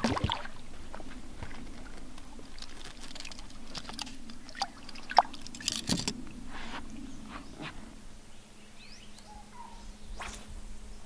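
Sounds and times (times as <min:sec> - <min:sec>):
water splashing and dripping: 0:00.0 - 0:05.6
low steady hum: 0:00.0 - 0:11.0.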